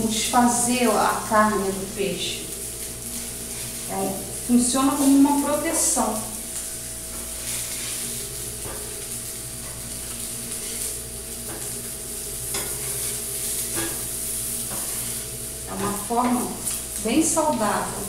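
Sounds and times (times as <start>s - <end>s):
fish sizzling on a griddle: 0.2s - 18.0s
metal spatula scraping griddle: 12.5s - 16.1s.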